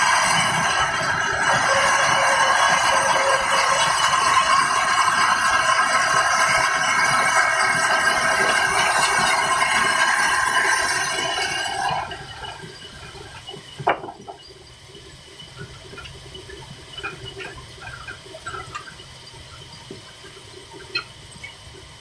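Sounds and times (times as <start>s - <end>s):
band saw cutting wood: 0.0s - 12.4s
diesel engine rumble: 0.0s - 22.0s.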